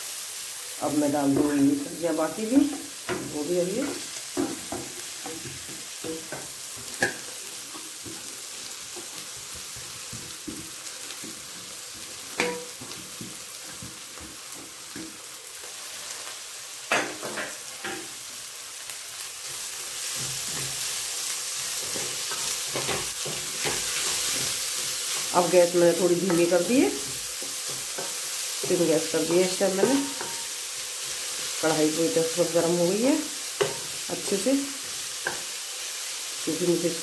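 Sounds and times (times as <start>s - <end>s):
vegetables sizzling in hot oil: 0.0s - 37.0s
spatula knocking on pan: 2.7s - 7.3s, 8.9s - 15.2s.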